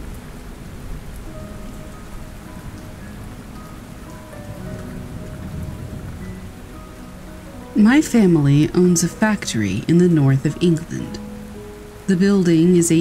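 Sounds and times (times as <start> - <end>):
faint low rumble: 0.0 - 11.3
soft music with long held notes: 0.0 - 13.0
steady rain falling: 0.0 - 13.0.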